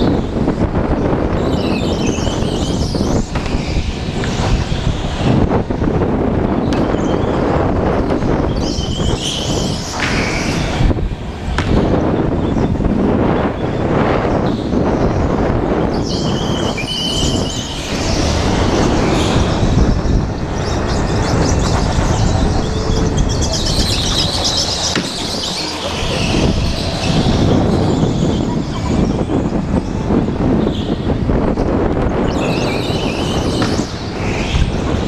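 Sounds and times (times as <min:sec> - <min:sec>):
go-kart engine rushing: 0:00.8 - 0:35.0
squealing streaks: 0:16.0 - 0:29.4.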